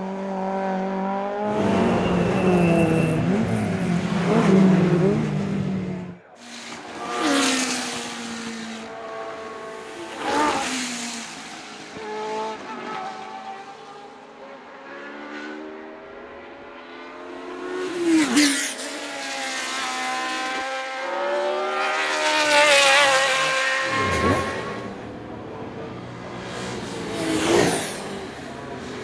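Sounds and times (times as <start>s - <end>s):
racing car engines revving high: 0.0s - 29.0s
racing car passing by: 0.1s - 29.0s.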